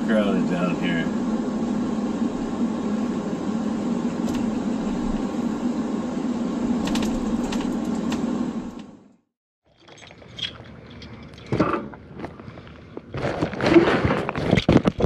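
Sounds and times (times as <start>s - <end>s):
car cabin road and engine noise: 0.0s - 9.2s.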